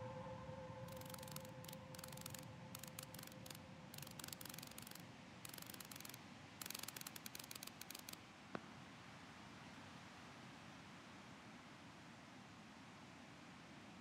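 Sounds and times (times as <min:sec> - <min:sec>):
rapid dry wing clicking: 0:00.9 - 0:08.2.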